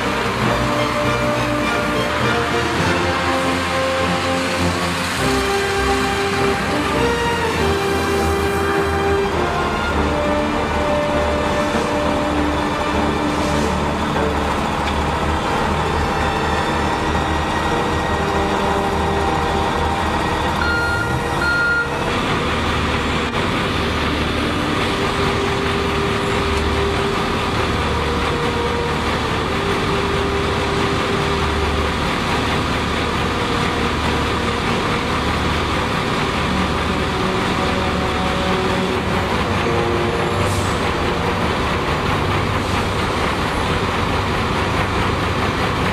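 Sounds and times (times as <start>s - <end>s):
truck machine running: 0.0s - 45.9s
short beeps: 20.6s - 22.0s.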